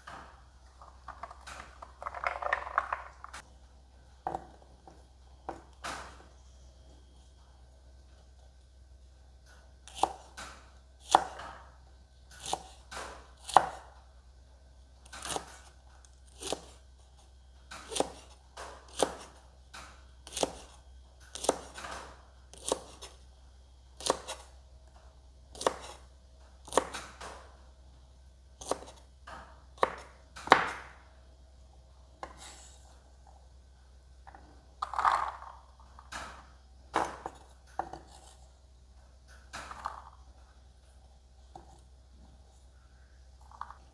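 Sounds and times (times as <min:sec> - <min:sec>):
knife chopping on wooden board: 0:09.9 - 0:11.6, 0:12.4 - 0:13.8, 0:17.9 - 0:19.3, 0:21.3 - 0:23.1, 0:25.5 - 0:26.0, 0:28.6 - 0:29.0, 0:29.8 - 0:30.9.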